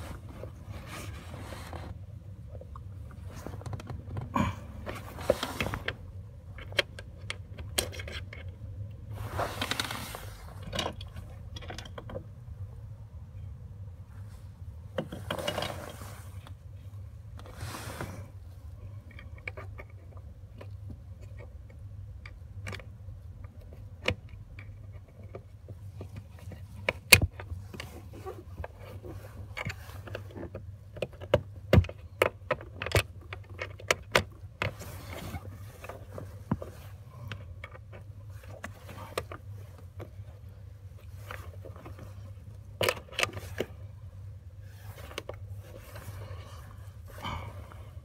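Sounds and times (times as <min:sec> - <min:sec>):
rustling: 0:00.0 - 0:06.0, 0:09.1 - 0:11.4, 0:34.6 - 0:48.0.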